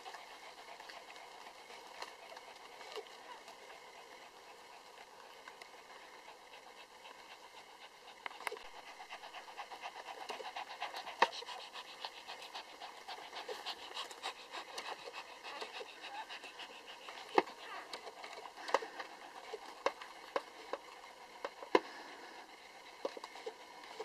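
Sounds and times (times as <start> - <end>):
dog licking wet clicks: 7.8 - 20.9.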